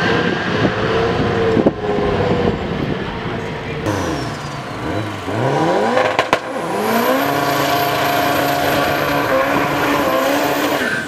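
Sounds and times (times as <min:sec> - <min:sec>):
car engine revving high: 0:00.0 - 0:11.0
sharp cracks: 0:05.9 - 0:06.6.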